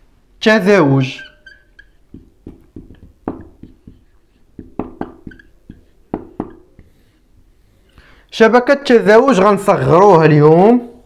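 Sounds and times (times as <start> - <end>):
marker squeaks: 0.9 - 8.0
marker tapping and scraping on whiteboard: 1.2 - 8.0.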